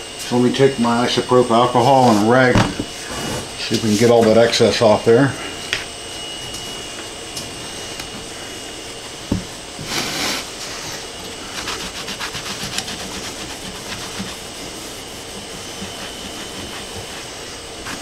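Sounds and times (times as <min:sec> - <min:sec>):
rag rubbing metal plate: 0:09.8 - 0:18.0.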